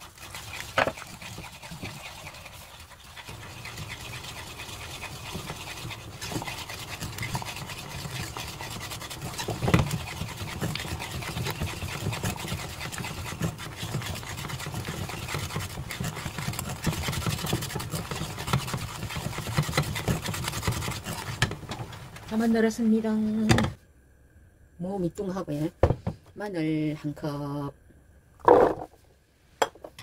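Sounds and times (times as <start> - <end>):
whisk knocking against pan: 0.0 - 21.6
whisk scraping and slapping paste: 0.0 - 21.8.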